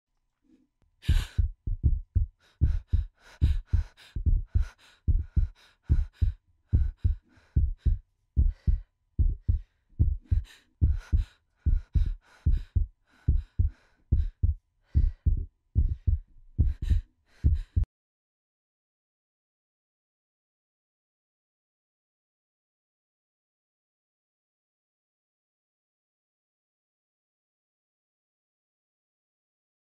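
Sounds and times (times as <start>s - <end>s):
heartbeat thumps: 1.1s - 17.9s.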